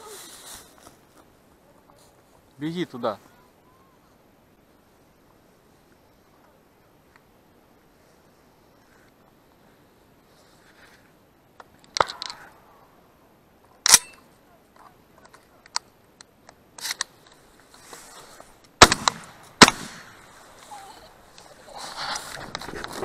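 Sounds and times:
shotgun shots: 18.8 - 20.2.

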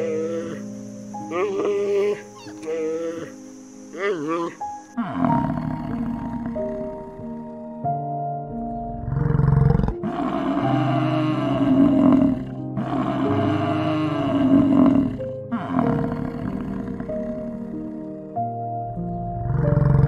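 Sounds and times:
soft background music: 0.0 - 20.0
large animal roaring: 8.9 - 18.0, 19.3 - 20.0.

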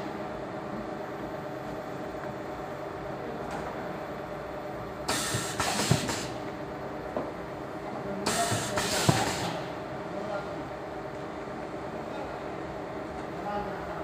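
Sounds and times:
packing machine humming: 1.4 - 10.2
pneumatic cylinder knock: 5.1 - 6.4, 8.3 - 9.6
compressed air hiss: 8.3 - 9.6.

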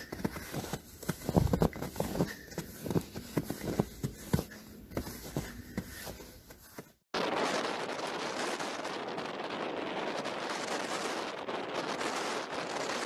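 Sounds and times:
footsteps crunching in snow: 0.0 - 7.0.

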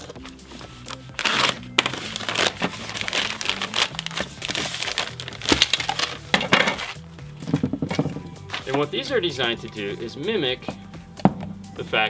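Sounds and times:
plastic bag tearing and crinkling: 0.9 - 7.0.

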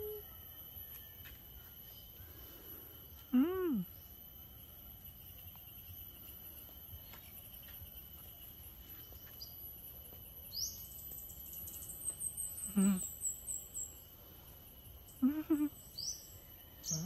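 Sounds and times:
insects trilling: 0.0 - 17.0.

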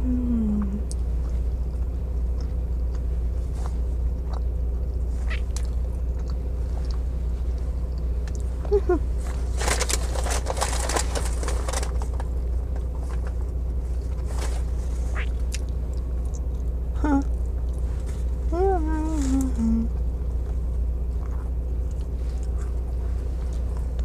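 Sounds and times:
person chewing food: 0.5 - 9.5, 12.2 - 17.8, 19.9 - 24.0.

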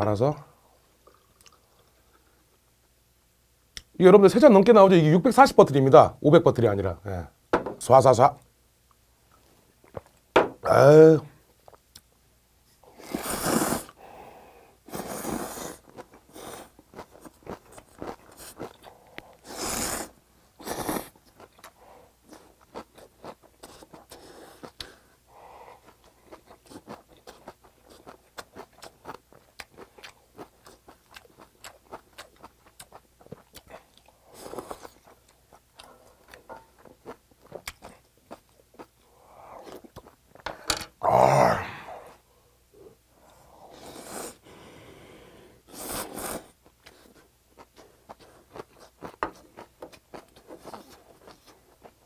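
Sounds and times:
person slurping noodles: 13.0 - 14.0, 14.9 - 16.7, 19.4 - 21.2
wet chewing: 25.8 - 38.9.

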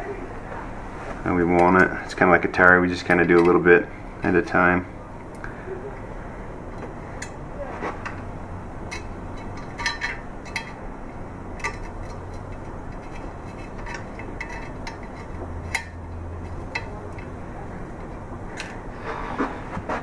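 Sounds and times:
light metal clicks and clinks: 11.6 - 18.8.

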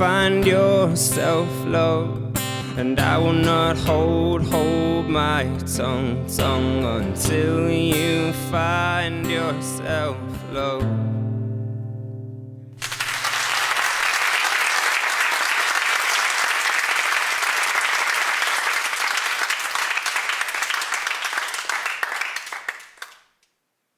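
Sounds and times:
audience clapping: 12.8 - 23.5.

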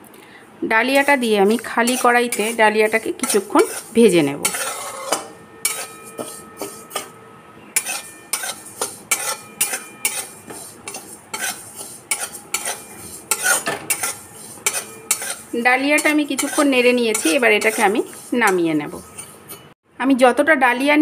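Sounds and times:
metal spatula scraping a pan: 0.8 - 19.8
faint metallic ring of pan: 5.0 - 11.0
grains rustling against pan: 7.8 - 19.5.

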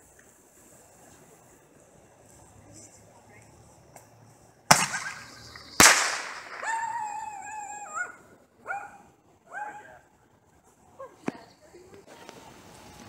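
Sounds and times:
loud firework bangs: 4.7 - 7.2
high pitched cry: 6.4 - 8.2.

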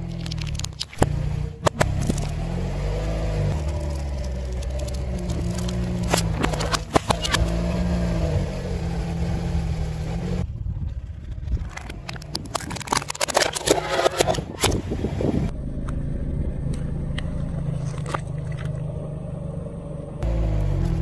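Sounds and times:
car engine running: 0.0 - 21.0
tyre crushing objects: 3.4 - 7.6.

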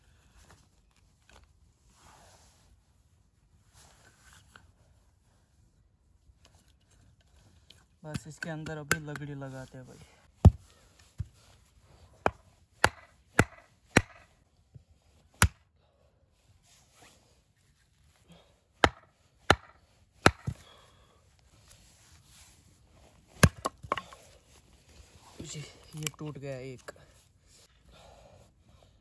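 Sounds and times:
firewood being chopped: 10.4 - 11.4, 12.2 - 14.3, 15.4 - 15.6, 18.8 - 20.8, 23.3 - 24.4.

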